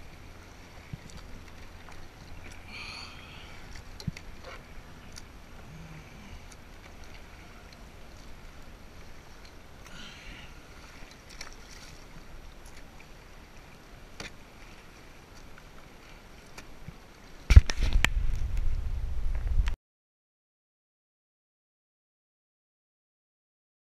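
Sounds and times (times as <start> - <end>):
water lapping against hull: 0.0 - 18.4
paddle splashes: 0.0 - 18.5
loud low rumble on microphone: 17.6 - 19.8.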